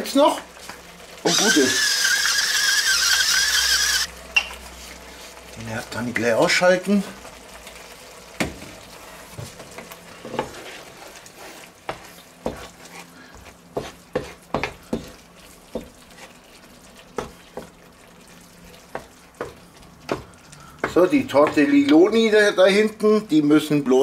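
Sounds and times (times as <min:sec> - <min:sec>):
faint sauce sizzle: 0:00.0 - 0:02.4, 0:03.7 - 0:23.8
wooden spatula scraping pan: 0:09.0 - 0:16.4.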